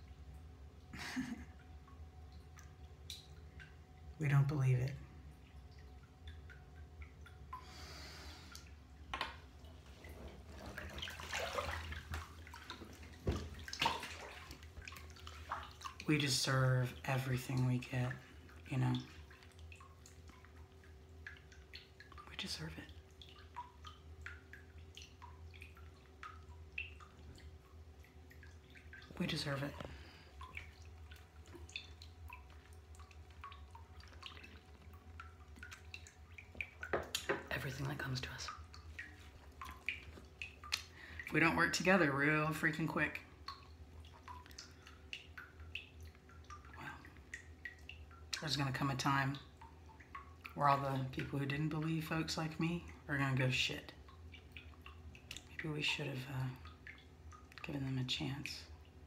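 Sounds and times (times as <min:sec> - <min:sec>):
bathwater sloshing: 0:00.0 - 0:59.0
low steady hum: 0:00.0 - 0:59.0
water dripping: 0:00.0 - 0:59.0
water splash: 0:09.1 - 0:20.6.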